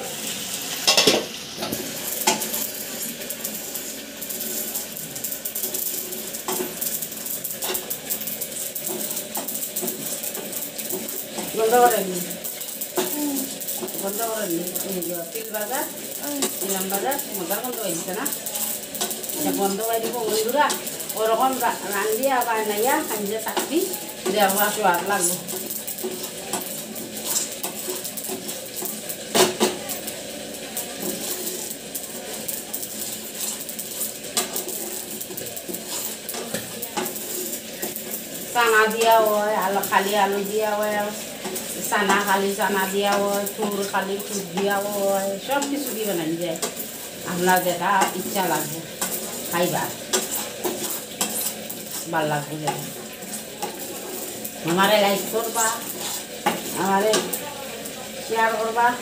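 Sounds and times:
seeds crackling in a frying pan: 0.0 - 59.0
wooden spatula scraping: 33.1 - 39.6, 40.8 - 57.4.

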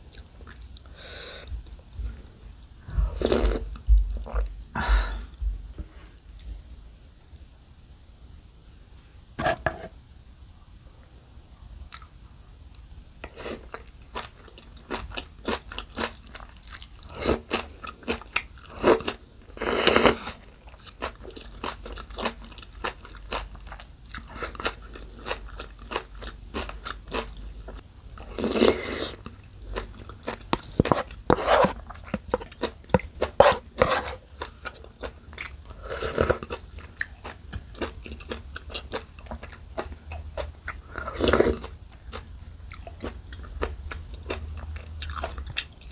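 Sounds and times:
chewing and crunching food: 11.9 - 45.9.

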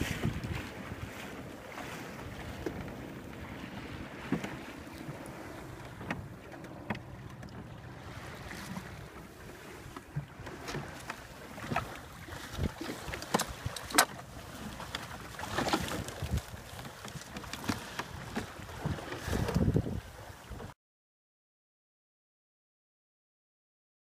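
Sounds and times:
wind on microphone: 0.0 - 9.9, 11.6 - 13.8, 15.6 - 17.2, 18.1 - 20.8
water splashing along boat hull: 0.0 - 20.8.

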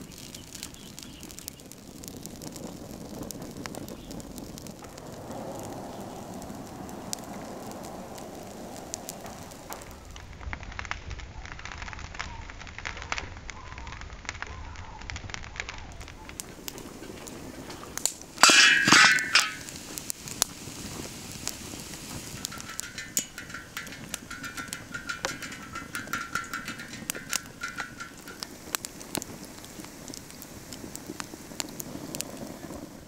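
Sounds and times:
wood fire crackling: 0.0 - 33.0.

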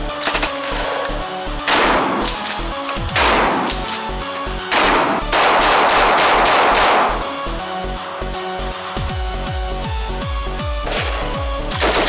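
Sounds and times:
gunshots with echoing decay: 0.1 - 7.6, 10.8 - 12.0
electronic music with steady beat: 5.5 - 11.9.

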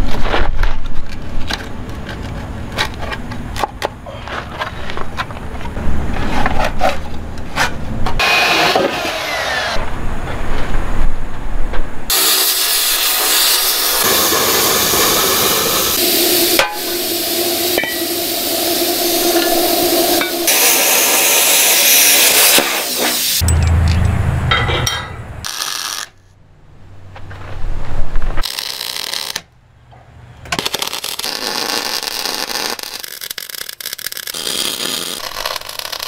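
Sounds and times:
plasma cutter hissing: 12.1 - 23.4
welder crackling: 12.1 - 23.4, 25.4 - 26.2, 28.4 - 29.5, 30.6 - 36.0.

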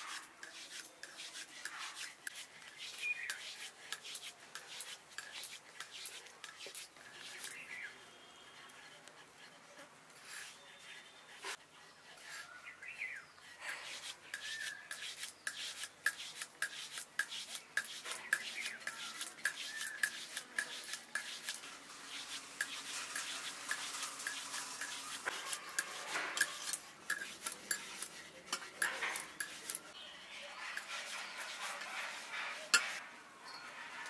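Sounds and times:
hands rolling dough on wood: 13.9 - 29.9.

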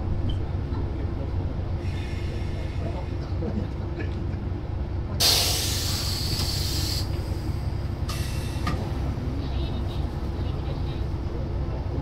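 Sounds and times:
diesel engine drone: 0.0 - 12.0
air escaping hiss: 5.2 - 8.8.

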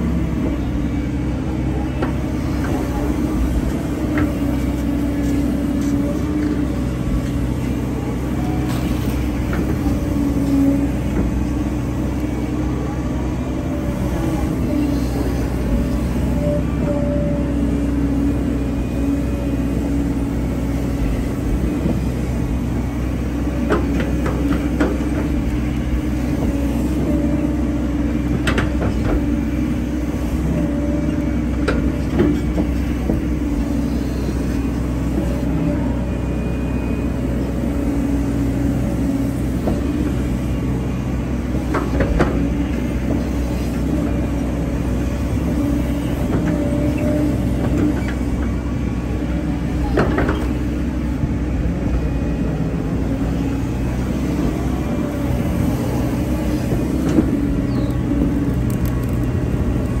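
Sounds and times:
excavator diesel engine running: 0.0 - 60.0.

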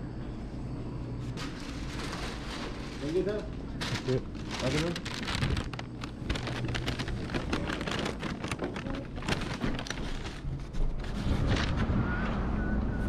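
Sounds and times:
paper bag crinkling: 1.4 - 11.8.

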